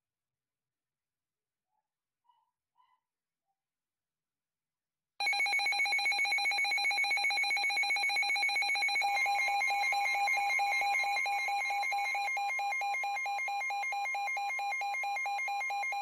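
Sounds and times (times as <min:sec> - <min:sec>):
rapid pulsing alarm beep: 0:05.2 - 0:16.0.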